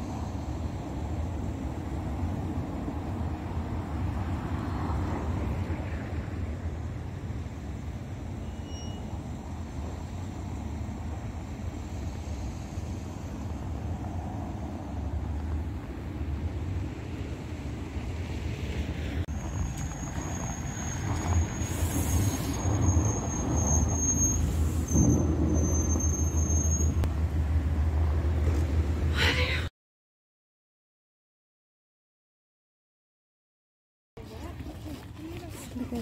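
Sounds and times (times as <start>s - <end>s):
low rumble of road vehicles: 0.0s - 29.7s
thin high whine: 8.4s - 9.2s.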